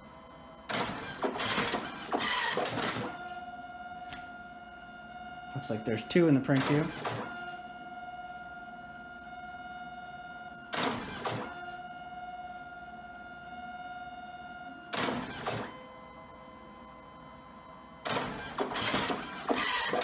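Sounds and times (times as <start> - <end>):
printer motor whine: 0.0 - 20.0
printer mechanical bursts: 0.7 - 8.4, 9.3 - 12.7, 13.3 - 15.8, 18.0 - 20.0.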